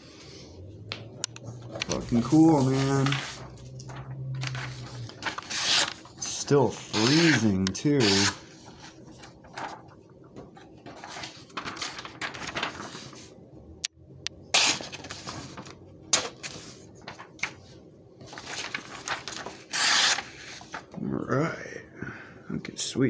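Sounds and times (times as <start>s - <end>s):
knife slicing paper: 8.0s - 8.4s, 19.7s - 20.5s.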